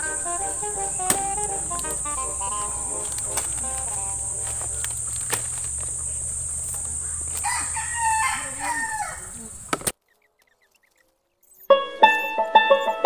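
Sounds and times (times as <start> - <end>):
high-pitched hiss: 0.0 - 9.9
knife cutting fruit knocks: 1.0 - 1.9
rooster crowing: 7.0 - 9.4.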